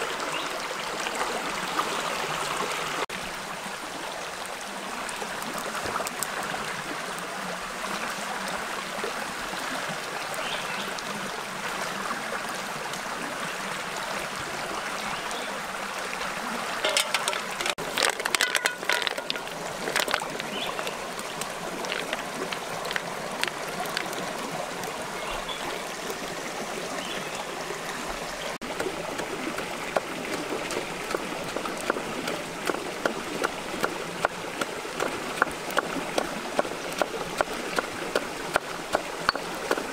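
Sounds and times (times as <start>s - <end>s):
stream running: 0.0s - 39.9s
shellfish clattering into metal pan: 16.8s - 20.6s
wood fire crackling: 16.9s - 24.2s.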